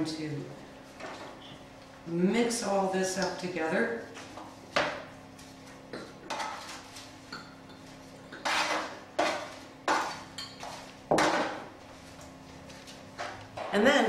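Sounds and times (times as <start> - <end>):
spoon scraping a roasting pan: 8.4 - 10.8.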